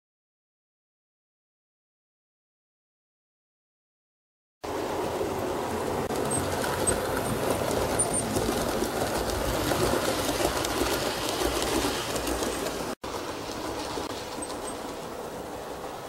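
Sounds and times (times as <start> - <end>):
model train rumbling on rails: 4.6 - 16.0.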